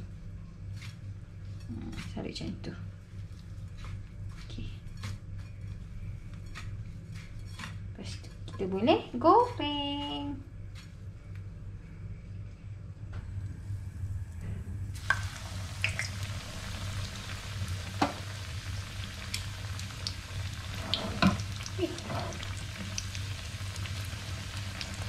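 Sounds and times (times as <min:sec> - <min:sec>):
low steady hum: 0:00.0 - 0:25.0
oil spitting and popping: 0:15.0 - 0:16.3
chicken sizzling in oil: 0:15.0 - 0:25.0.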